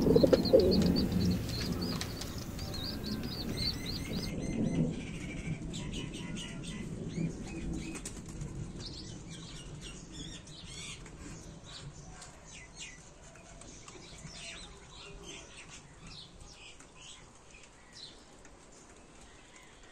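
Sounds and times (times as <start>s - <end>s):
pigeon wings flapping: 0.0s - 4.3s
small birds chirping: 0.0s - 4.3s.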